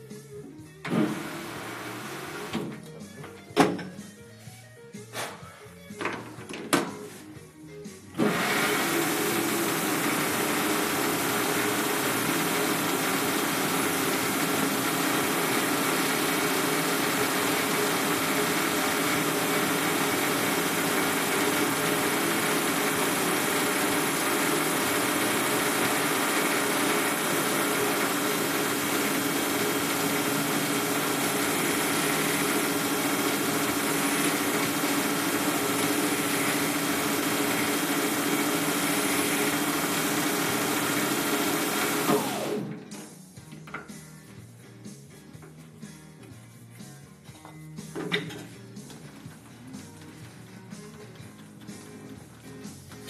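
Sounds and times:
metal lathe running: 0.9s - 2.8s, 8.2s - 42.8s.

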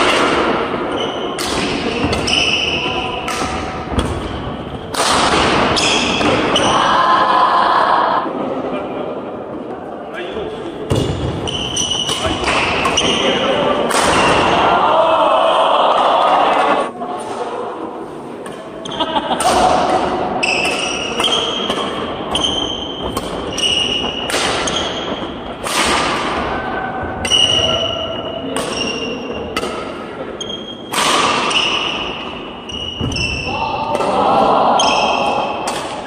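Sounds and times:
rackets hitting shuttlecock: 0.0s - 6.7s, 10.9s - 14.6s, 18.4s - 36.0s.

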